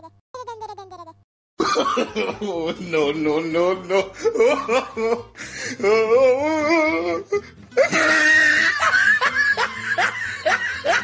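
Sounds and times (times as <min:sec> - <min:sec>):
laughter: 0:01.6 - 0:02.8, 0:04.2 - 0:05.3, 0:07.8 - 0:11.0
music: 0:01.6 - 0:11.0.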